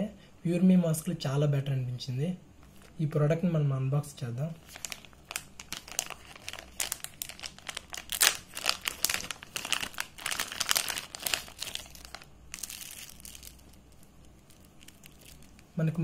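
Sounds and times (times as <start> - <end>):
plastic packaging crinkling: 4.6 - 16.0.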